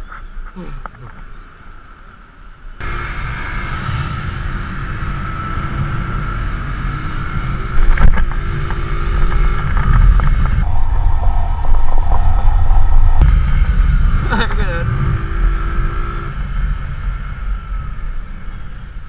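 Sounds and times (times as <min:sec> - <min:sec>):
wind rush on microphone: 0:03.9 - 0:19.0.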